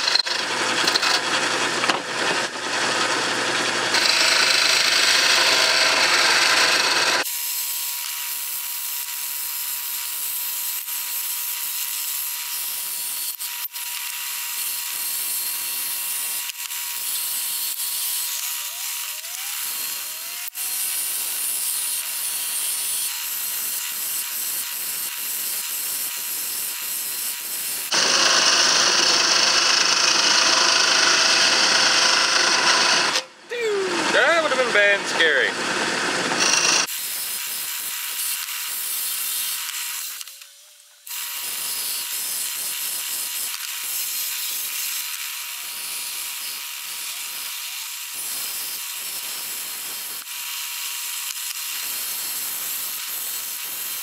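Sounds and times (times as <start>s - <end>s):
lathe gouge scraping wood: 27.9s - 33.2s.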